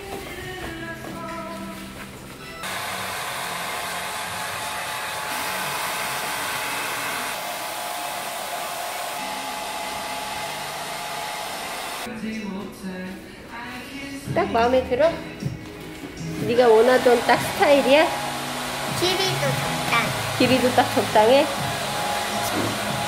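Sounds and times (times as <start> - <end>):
hair dryer blowing: 2.6 - 12.1, 16.4 - 23.0.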